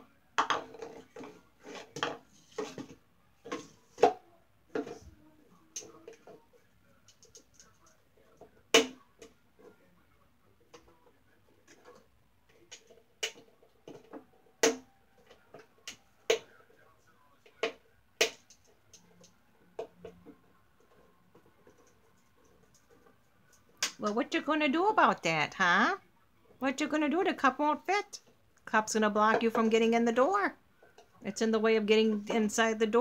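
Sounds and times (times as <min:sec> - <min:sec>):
cup knocking against wooden box: 0:00.4 - 0:02.9.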